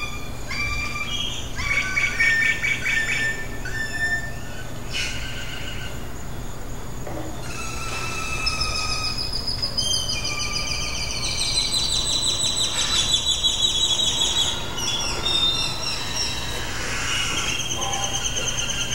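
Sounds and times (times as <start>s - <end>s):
birds trilling and chirping: 0.0s - 18.9s.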